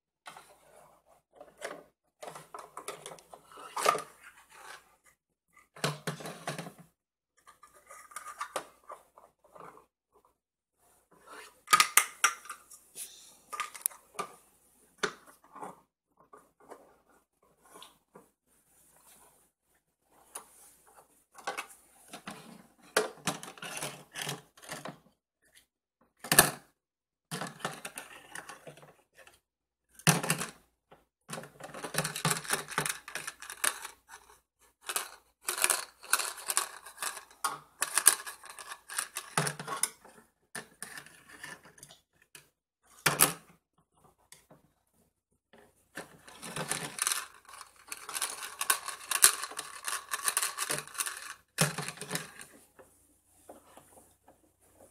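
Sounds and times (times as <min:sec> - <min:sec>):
plastic toy cookware clattering: 0:01.4 - 0:04.8, 0:05.7 - 0:06.8, 0:07.4 - 0:08.9, 0:11.3 - 0:12.7, 0:13.5 - 0:14.3, 0:22.9 - 0:25.0, 0:27.3 - 0:28.9, 0:31.3 - 0:42.4, 0:46.0 - 0:52.6.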